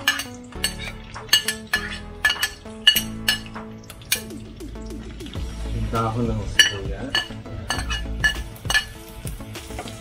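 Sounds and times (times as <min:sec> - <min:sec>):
metal ladle clinking on glass lid: 0:00.0 - 0:03.5, 0:06.6 - 0:09.0.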